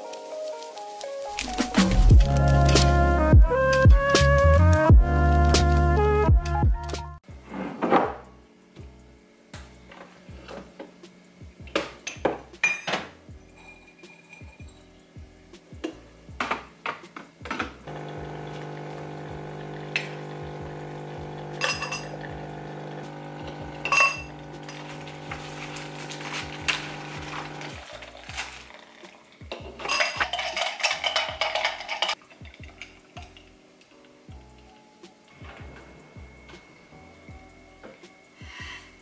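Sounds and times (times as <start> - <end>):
glassy clinks and knocks: 12.1 - 14.9, 23.8 - 24.3
espresso machine pump humming: 17.9 - 28.8
ice cubes rattling in glass: 23.8 - 29.2, 29.8 - 33.3.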